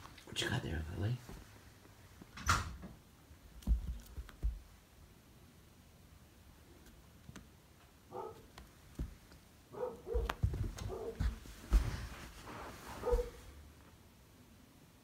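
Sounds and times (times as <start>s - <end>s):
thumps and knocks on carpet: 3.6s - 4.8s, 8.5s - 9.4s, 10.1s - 13.4s.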